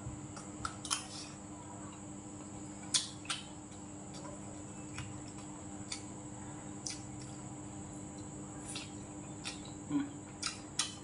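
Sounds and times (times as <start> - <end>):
steady low hum: 0.0 - 11.0
mouth eating sounds: 8.6 - 11.0.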